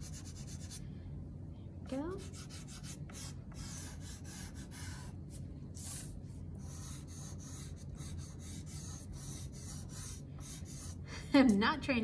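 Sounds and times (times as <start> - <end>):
chalk pastel scratching on paper: 0.0 - 0.8, 2.1 - 5.2, 5.8 - 11.0.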